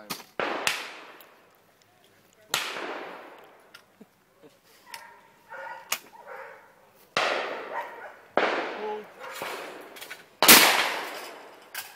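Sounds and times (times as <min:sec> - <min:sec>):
close shotgun shots: 0:00.1 - 0:01.2, 0:02.5 - 0:03.6, 0:07.2 - 0:07.8, 0:08.4 - 0:11.6
distant shotgun shots with echo: 0:00.4 - 0:01.4, 0:02.5 - 0:03.7, 0:07.2 - 0:11.6.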